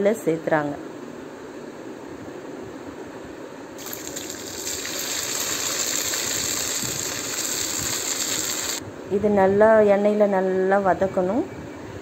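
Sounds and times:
garlic paste sizzling in oil: 3.8 - 8.8.

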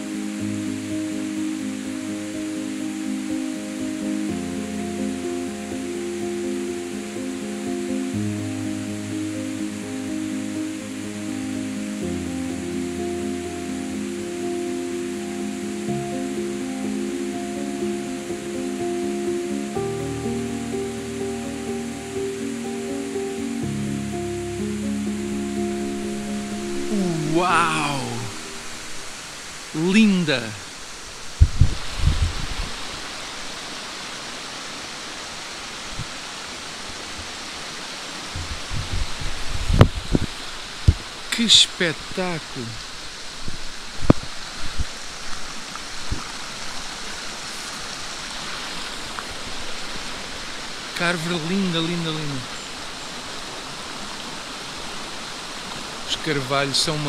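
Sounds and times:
soft sustained chords: 0.0 - 30.3
steady hiss: 0.0 - 57.0
stream rushing over rocks: 0.0 - 57.0.

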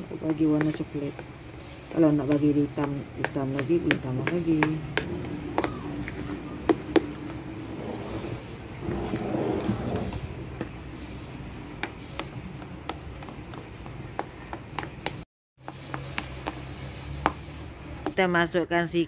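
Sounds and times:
spoon stirring thick batter: 0.0 - 7.4.

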